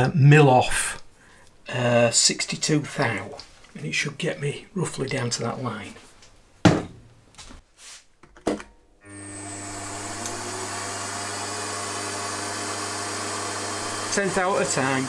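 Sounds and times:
milling machine motor spinning up: 9.0 - 15.0.

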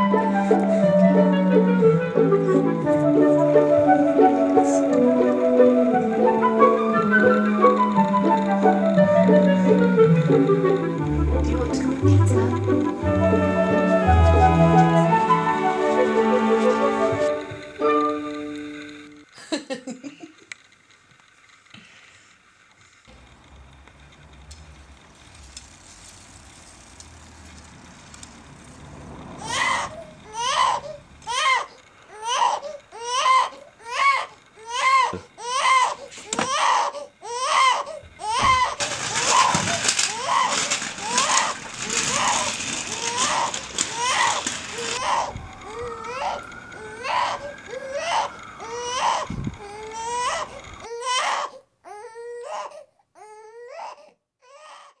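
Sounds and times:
loud wailing cries: 0.0 - 18.3, 29.2 - 55.0
faint steady rumble: 20.4 - 50.9
baby crying: 29.4 - 55.0.

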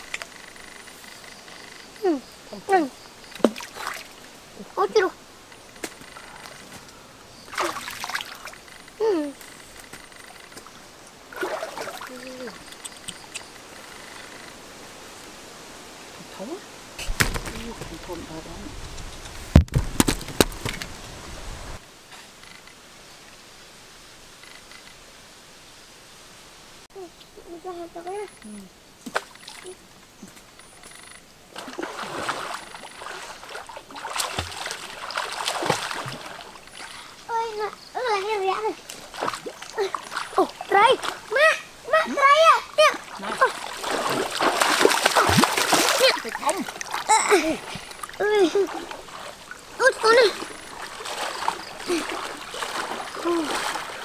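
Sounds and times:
stream trickling: 0.0 - 19.6, 27.2 - 54.0
water splashing and sloshing: 0.0 - 21.8, 29.0 - 54.0
leafy branches rustling: 0.0 - 24.4, 31.4 - 54.0.

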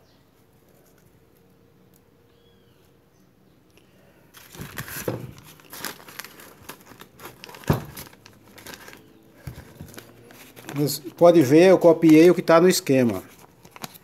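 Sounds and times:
paper crinkling and rustling: 4.3 - 14.0.

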